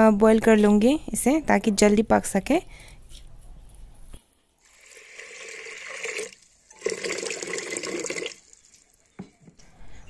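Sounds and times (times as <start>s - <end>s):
water pouring into a metal pot: 4.7s - 8.7s.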